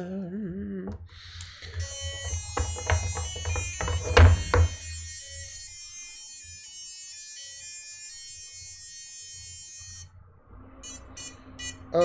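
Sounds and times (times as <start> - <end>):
quadcopter motors whining: 1.4 - 10.1.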